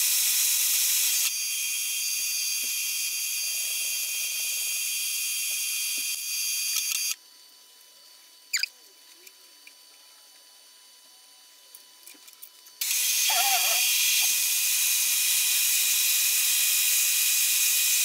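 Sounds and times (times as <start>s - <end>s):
drill whining: 0.0s - 7.2s, 12.8s - 18.0s.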